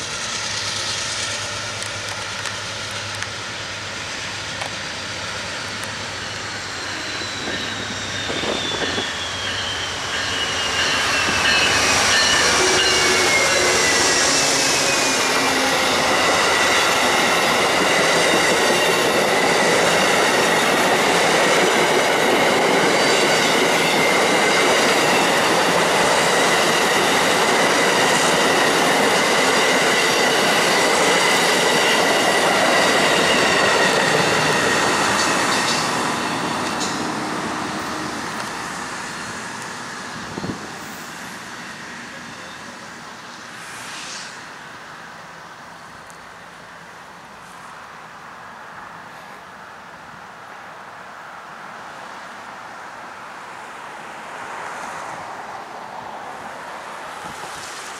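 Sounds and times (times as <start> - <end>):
wheel-on-rail noise: 0.0 - 47.7
diesel locomotives passing: 0.0 - 57.9
steady high ring: 6.0 - 17.0.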